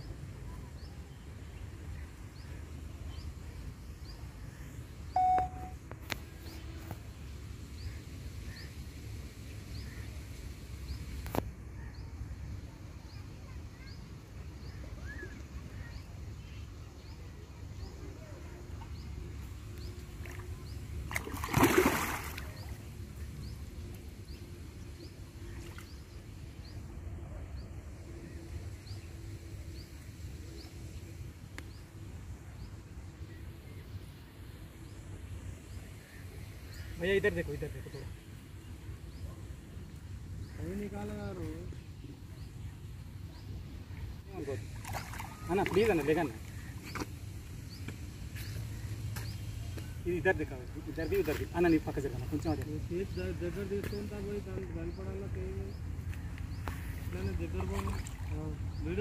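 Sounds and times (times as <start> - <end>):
faint high chirps: 5.1 - 5.8
water splash: 21.1 - 22.8, 44.8 - 46.2.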